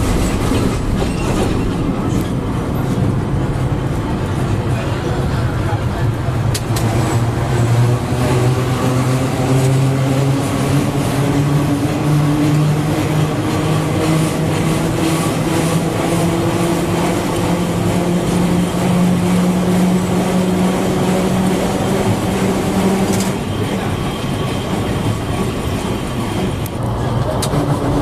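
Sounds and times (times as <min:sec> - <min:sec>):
tram motors whining: 0:00.0 - 0:28.0
wheels rumbling on track: 0:00.0 - 0:28.0.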